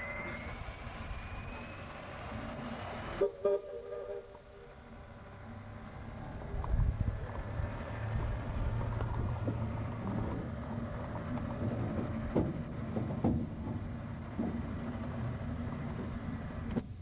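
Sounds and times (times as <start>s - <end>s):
train cars rumbling on track: 0.0s - 17.0s
train sharp clanks: 8.8s - 16.9s.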